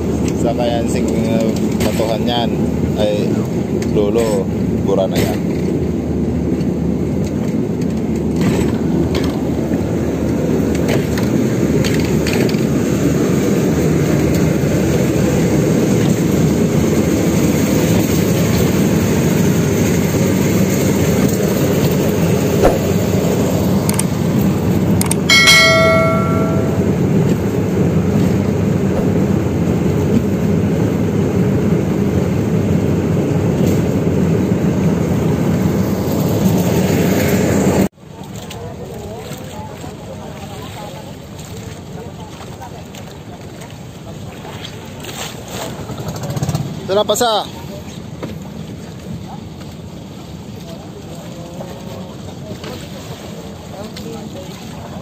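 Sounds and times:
boat engine running: 0.0s - 55.0s
metallic clang: 25.3s - 27.0s.

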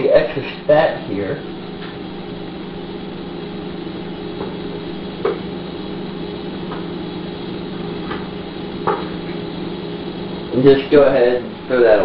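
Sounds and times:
appliance hum: 0.0s - 12.0s.

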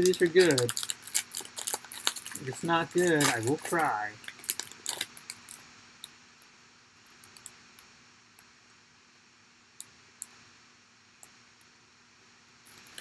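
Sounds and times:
plastic snack packet crinkling: 0.0s - 5.7s, 12.7s - 13.0s
low room hiss: 0.0s - 13.0s.

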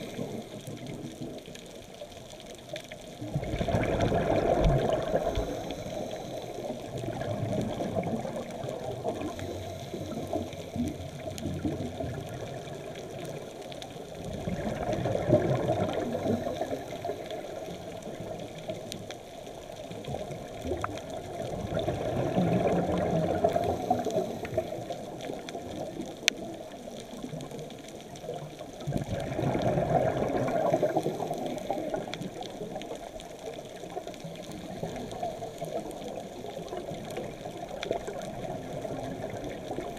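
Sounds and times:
low underwater hiss: 0.0s - 39.9s
diver exhaling bubbles underwater: 3.2s - 13.5s, 14.2s - 18.6s, 20.1s - 26.0s, 28.8s - 32.6s.

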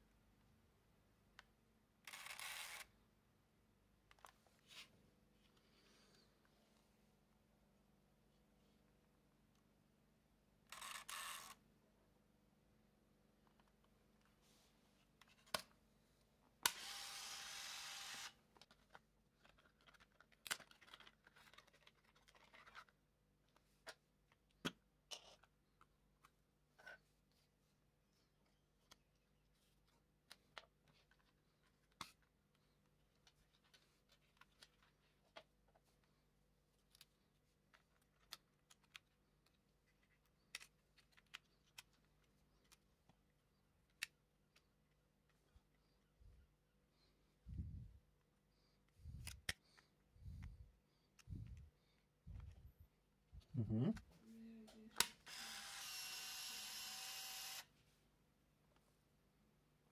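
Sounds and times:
film transport motor whirring: 2.1s - 2.8s, 16.6s - 18.4s, 55.0s - 57.7s.

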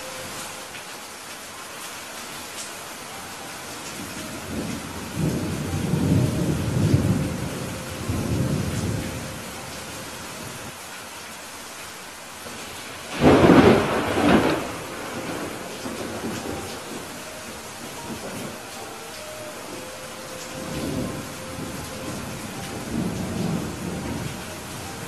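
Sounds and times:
steady rain hiss: 0.0s - 25.0s
rolling thunder rumble: 4.0s - 9.7s, 13.1s - 18.8s, 19.7s - 25.0s
sharp thunderclap: 13.1s - 17.0s.

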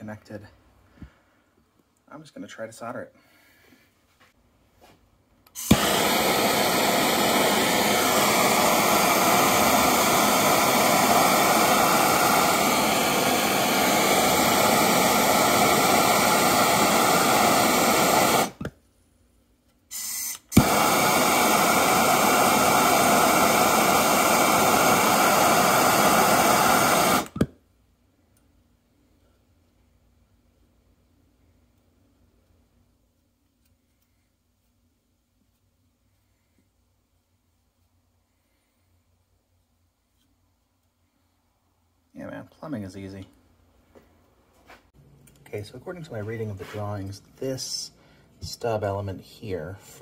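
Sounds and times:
torch igniter click: 5.5s - 12.8s, 20.0s - 23.4s, 24.0s - 27.6s
gas torch hissing: 5.5s - 18.7s, 19.9s - 27.5s
torch sputtering: 5.6s - 18.7s, 19.9s - 27.5s.

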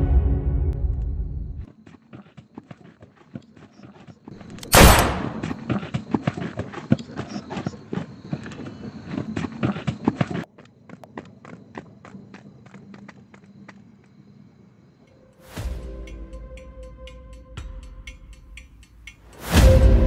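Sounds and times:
footsteps on gritty ground: 1.6s - 14.2s.

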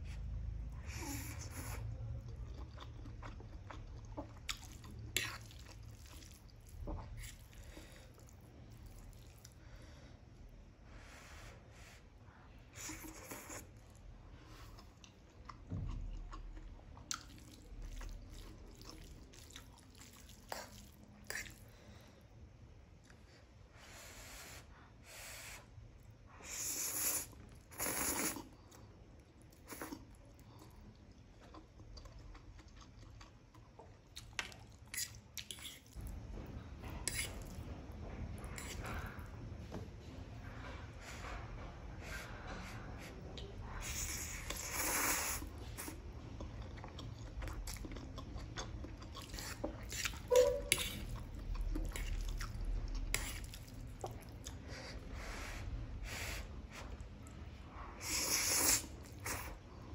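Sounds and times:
wet chewing: 1.1s - 9.6s, 12.8s - 21.8s, 26.9s - 39.3s, 43.4s - 55.0s
noodles slurp: 58.0s - 59.6s.

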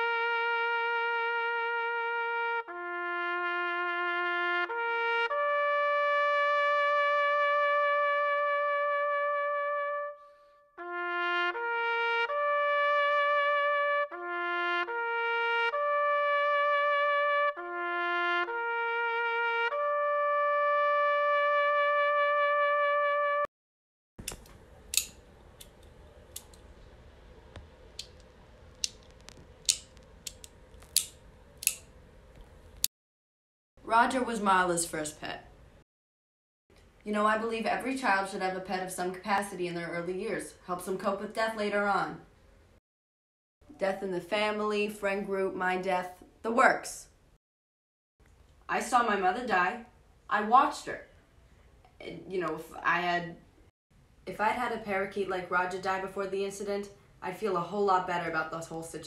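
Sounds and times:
solo instrumental melody: 0.0s - 23.5s
sharp clicks: 24.2s - 26.7s, 28.0s - 32.5s.

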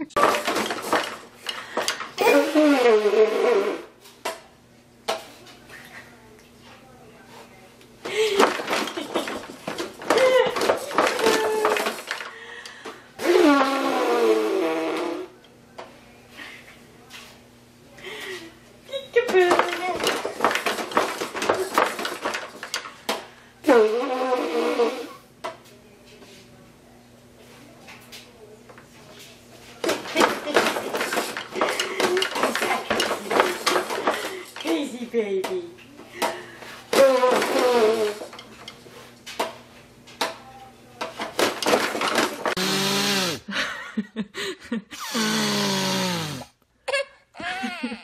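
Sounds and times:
man blowing his nose: 13.2s - 15.3s, 45.0s - 46.5s
baby laughing: 46.9s - 48.0s.

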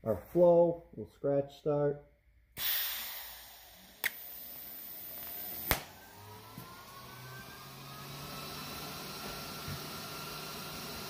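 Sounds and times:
gas hiss: 2.6s - 5.9s.

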